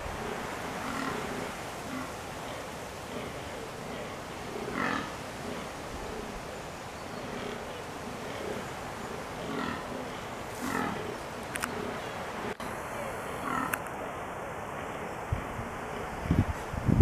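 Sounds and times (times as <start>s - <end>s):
deer groaning: 7.1s - 12.6s.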